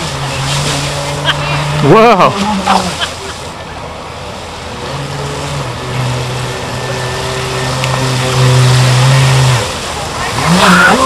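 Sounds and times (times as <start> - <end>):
model boat motor hum: 0.0 - 11.0
water hissing: 0.0 - 11.0.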